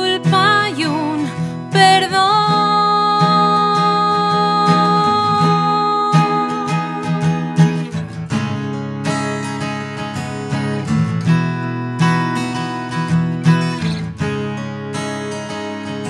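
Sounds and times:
woman singing: 0.0 - 8.0
strummed acoustic guitars: 0.0 - 16.0.

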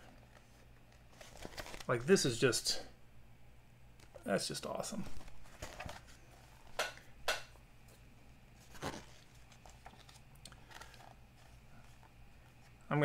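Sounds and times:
magazine pages turning: 0.0 - 2.2, 4.9 - 6.8, 8.5 - 12.8.

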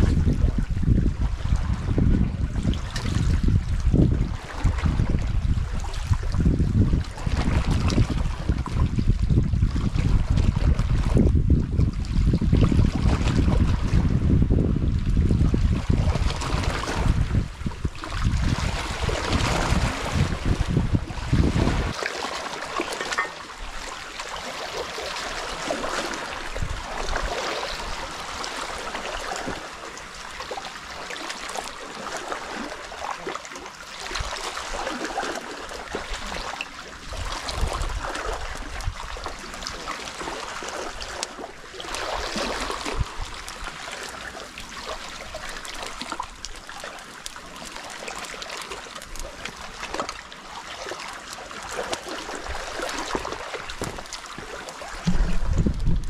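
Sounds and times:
small waves washing over rocks: 15.4 - 56.0.

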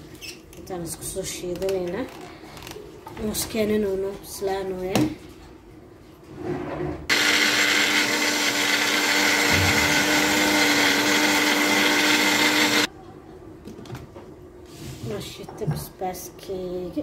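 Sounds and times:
blender grinding: 7.1 - 12.9.

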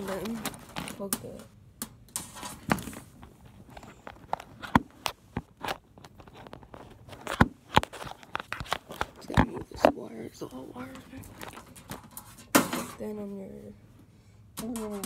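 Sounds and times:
phone and cables handled: 0.0 - 1.5, 2.2 - 10.0, 10.9 - 12.5.

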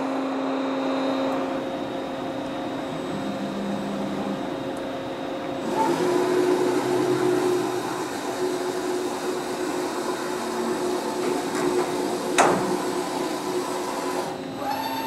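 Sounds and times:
lathe machinery whirring: 0.0 - 15.0
motor whine: 0.0 - 15.0.

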